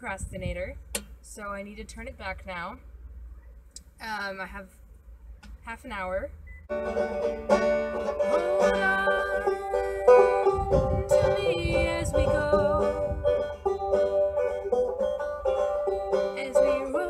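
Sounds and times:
banjo strummed and picked: 6.7s - 17.0s
low rumble: 7.6s - 16.8s
woman singing: 8.3s - 13.0s, 16.3s - 17.0s.

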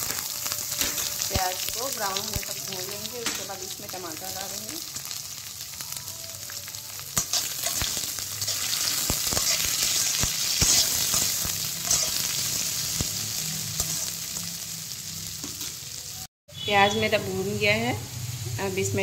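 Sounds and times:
onions sizzling in hot oil: 0.0s - 19.0s
metal spatula scraping a pan: 7.2s - 13.0s.

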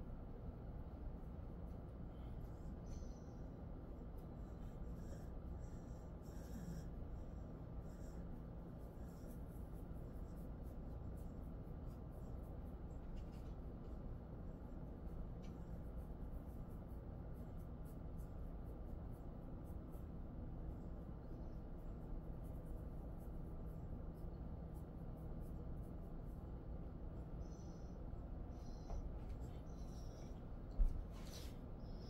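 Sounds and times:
steady low hum: 0.0s - 32.0s
fingers scratching through fur: 1.1s - 32.0s.

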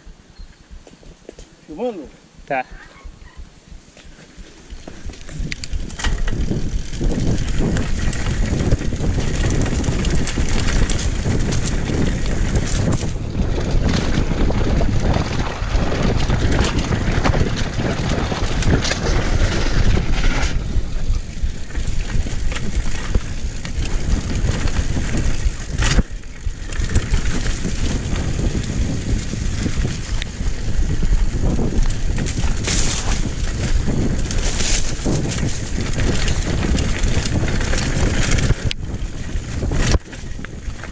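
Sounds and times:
mountain bike rumbling and rattling: 2.8s - 40.9s
wind buffeting microphone: 3.0s - 40.9s
bike knocking over bumps: 4.8s - 20.6s.

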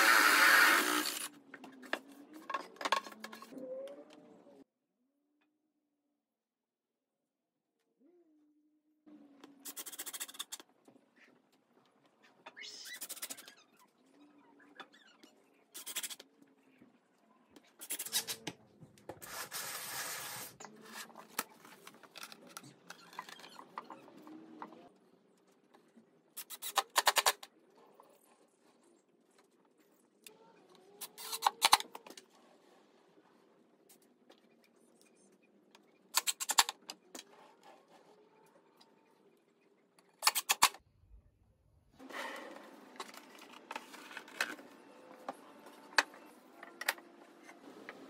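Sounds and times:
cordless drill driving screws: 0.0s - 1.3s.

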